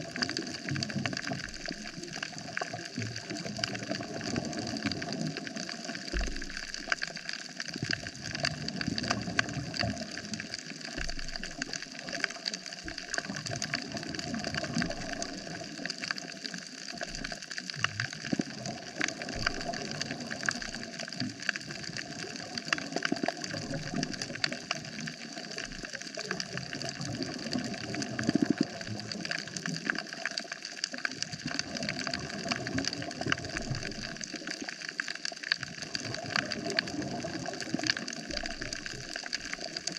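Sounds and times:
dense crackle of reef clicks: 0.0s - 39.9s
underwater water noise: 0.0s - 39.9s.

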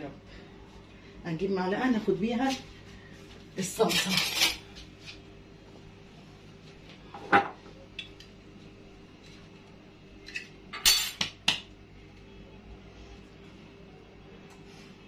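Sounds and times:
steel kitchenware clinking: 3.8s - 4.6s.

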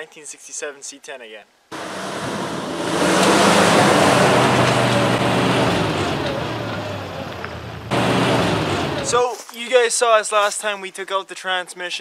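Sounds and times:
truck engine running: 1.7s - 9.2s.

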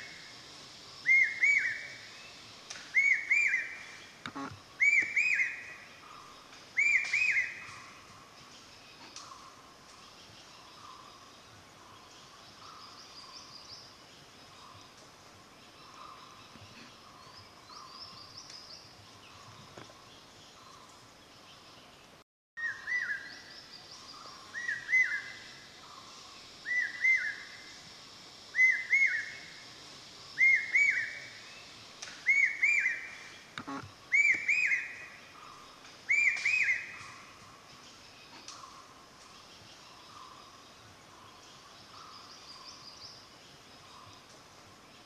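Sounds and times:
faint birdsong: 0.0s - 45.0s
bird whistled call: 1.1s - 1.9s, 2.9s - 3.8s, 4.8s - 5.7s, 6.8s - 7.6s, 30.4s - 31.2s, 32.2s - 33.1s, 34.1s - 35.0s, 36.1s - 37.0s.

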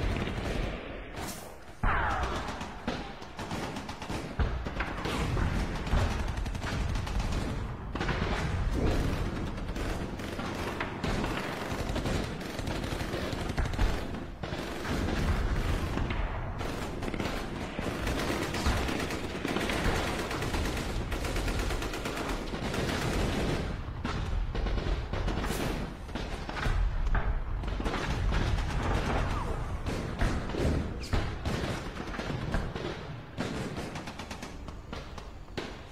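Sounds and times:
automatic gunfire: 1.9s - 23.9s.

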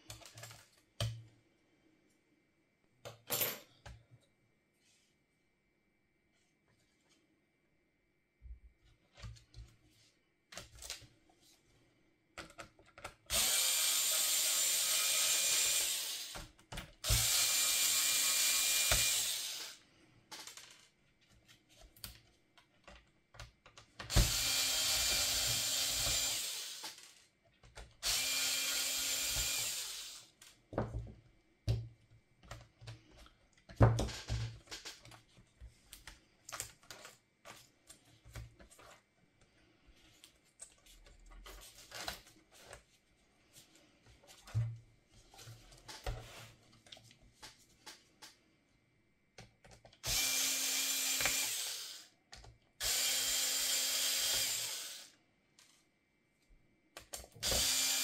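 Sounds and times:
small parts clicking and knocking: 0.0s - 1.1s, 20.3s - 28.1s
electric screwdriver running: 13.3s - 16.3s, 17.0s - 19.8s, 24.1s - 27.0s, 28.0s - 30.3s, 50.0s - 52.1s, 52.8s - 55.1s, 57.4s - 58.0s.

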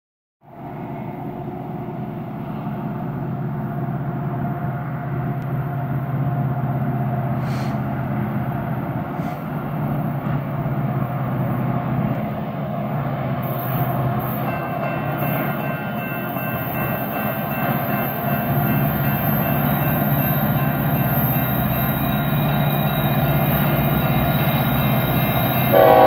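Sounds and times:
diesel locomotive engine rumble: 0.5s - 26.0s
crossing signal bell ringing: 13.8s - 26.0s.

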